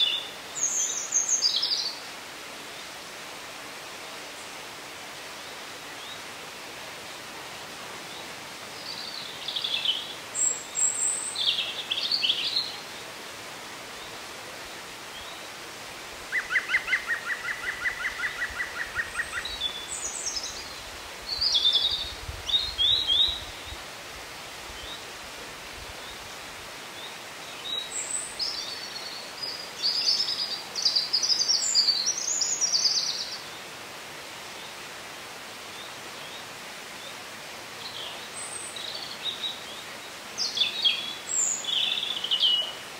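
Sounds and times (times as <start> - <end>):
background hiss: 0.0 - 42.9
birds singing: 8.1 - 13.0, 16.3 - 23.8, 26.9 - 33.7, 37.8 - 42.9.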